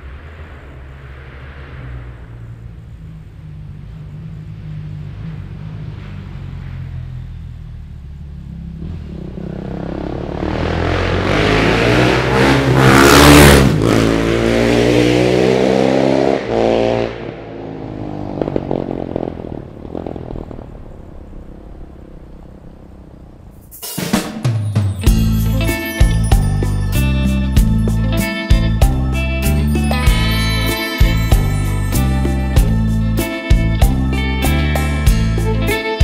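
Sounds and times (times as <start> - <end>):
motorcycle passing at speed: 0.0 - 7.8, 8.4 - 23.7.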